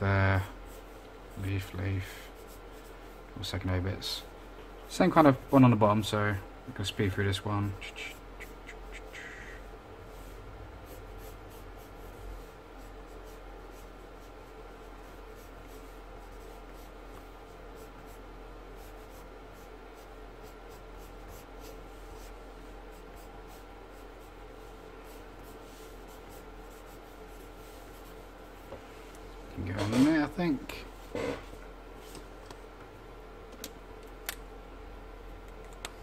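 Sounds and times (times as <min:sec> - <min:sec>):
faint steady hum: 0:00.0 - 0:36.0
pencil scratching on paper: 0:00.7 - 0:03.2, 0:10.1 - 0:28.4.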